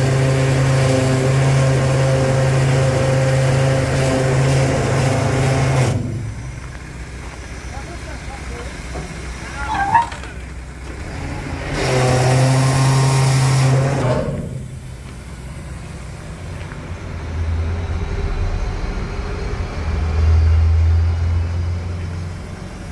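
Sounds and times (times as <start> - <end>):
diesel engine drone: 0.0 - 22.9
hydraulic hiss: 3.9 - 16.5.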